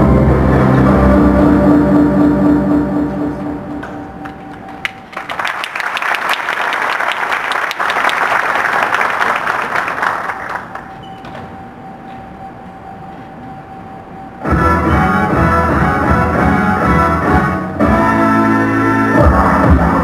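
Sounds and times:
music beat: 0.0s - 5.3s, 13.3s - 20.0s
audience applauding: 4.2s - 11.0s.

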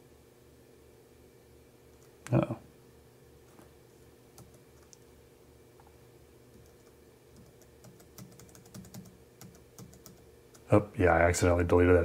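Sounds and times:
low room hum: 0.0s - 12.0s
keyboard and mouse clicks: 4.4s - 5.0s, 6.5s - 10.7s.

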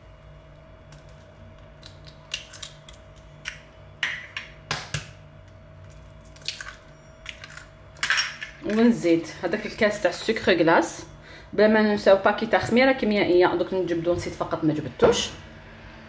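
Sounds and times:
eggs cracking against metal bowl: 0.9s - 9.0s.

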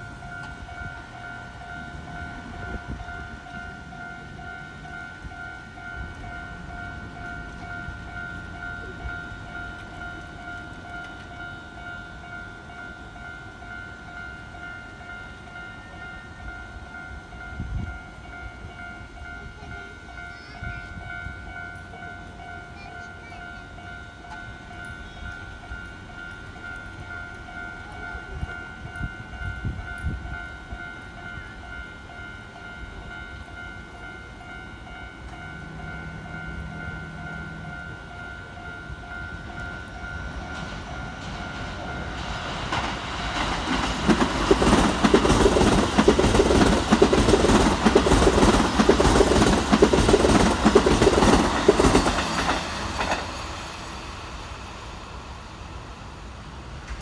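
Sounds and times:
level crossing warning bell: 0.0s - 53.6s
train wheels clattering over rail joints: 39.6s - 53.6s.

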